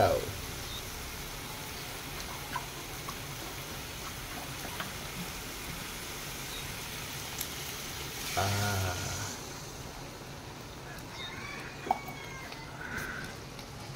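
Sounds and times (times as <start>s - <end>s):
curry bubbling and sizzling: 0.0s - 13.9s.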